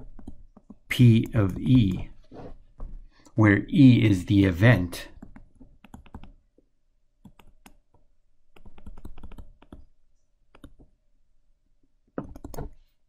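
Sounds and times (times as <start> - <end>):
stylus tapping on tablet screen: 12.1 - 12.8.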